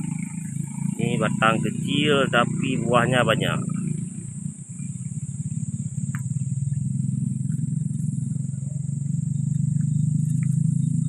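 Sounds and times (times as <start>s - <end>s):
high-pitched buzz: 0.0s - 4.4s
engine running with even pulse: 0.0s - 11.0s.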